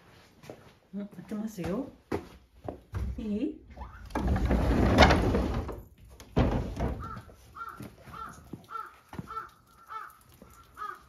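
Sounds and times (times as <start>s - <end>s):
crow cawing: 7.0s - 11.0s.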